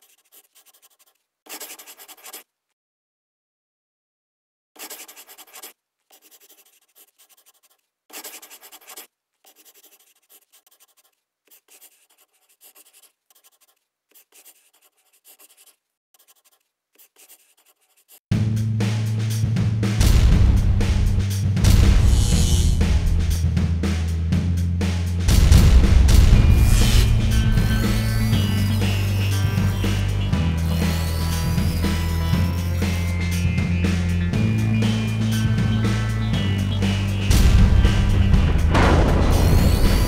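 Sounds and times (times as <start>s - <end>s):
scratchy handwriting strokes: 0.0s - 2.5s, 4.8s - 18.2s, 26.4s - 34.1s
deep bass drone: 18.3s - 40.0s
heavy booming hits: 20.0s - 23.6s, 25.2s - 28.6s, 37.3s - 40.0s.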